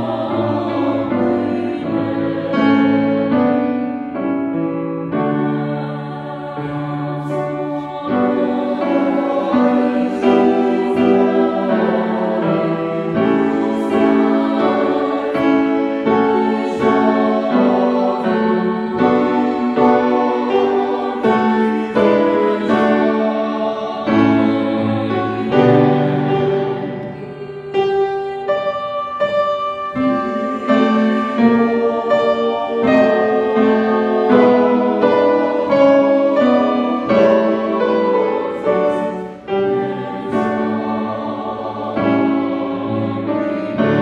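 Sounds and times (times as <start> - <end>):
grand piano: 0.0 - 44.0
mixed choir singing: 0.0 - 44.0.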